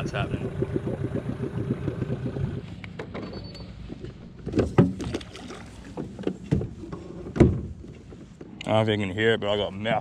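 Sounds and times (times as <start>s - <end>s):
boat motor pulsing hum: 0.0s - 3.0s
knocks and clunks on boat: 4.0s - 8.5s.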